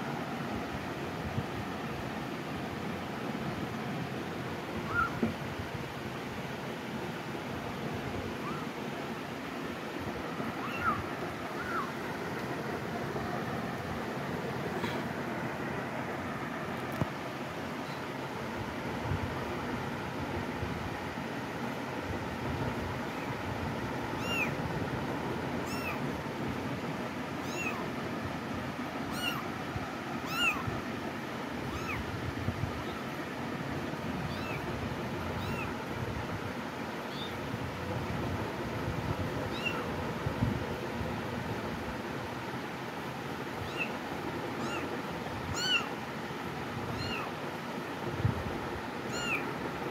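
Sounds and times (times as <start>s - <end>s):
kitten meowing: 4.8s - 5.3s, 8.4s - 8.7s, 10.6s - 11.9s, 24.2s - 24.6s, 25.6s - 26.0s, 27.4s - 27.8s, 29.1s - 29.5s, 30.2s - 30.7s, 31.7s - 32.1s, 34.3s - 34.7s, 35.4s - 35.8s, 37.1s - 37.4s, 39.5s - 39.9s, 43.6s - 44.0s, 44.6s - 44.9s, 45.5s - 46.0s, 46.9s - 47.4s, 49.1s - 49.5s.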